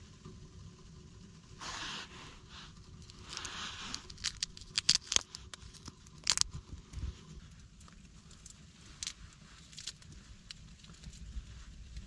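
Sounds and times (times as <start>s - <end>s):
tearing or scraping hisses: 1.6s - 2.5s, 3.1s - 6.4s
sharp clicks and crackles: 2.7s - 12.0s.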